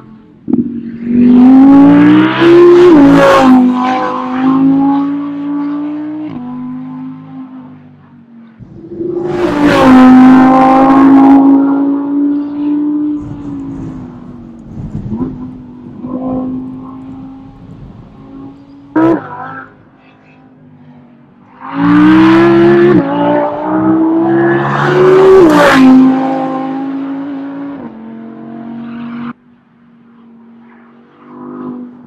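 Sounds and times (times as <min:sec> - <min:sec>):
race car engine passing: 0:08.4 - 0:19.9, 0:20.5 - 0:29.4.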